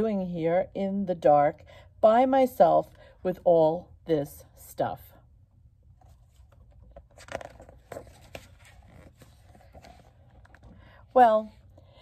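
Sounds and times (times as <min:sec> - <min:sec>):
book pages turning: 0:06.0 - 0:10.9.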